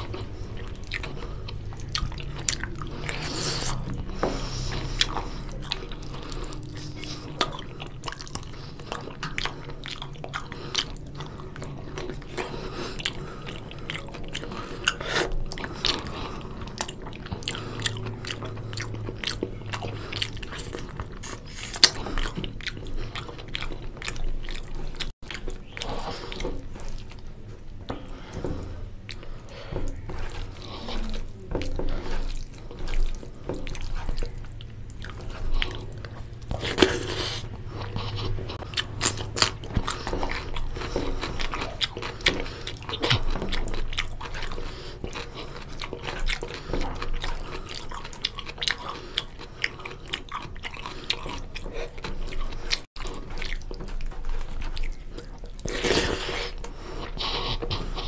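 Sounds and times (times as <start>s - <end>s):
person chewing food: 0.0s - 58.0s.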